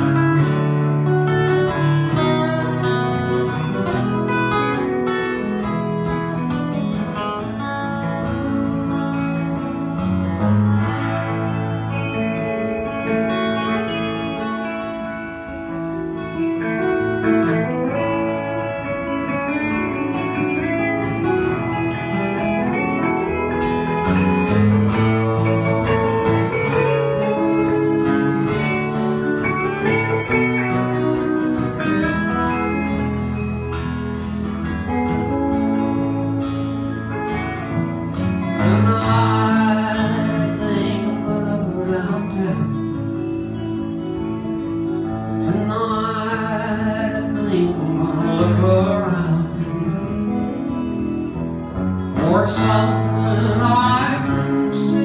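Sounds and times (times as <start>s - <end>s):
guitars playing country-folk song: 0.0s - 55.0s
person singing: 38.6s - 43.2s, 45.4s - 50.4s, 52.2s - 55.0s.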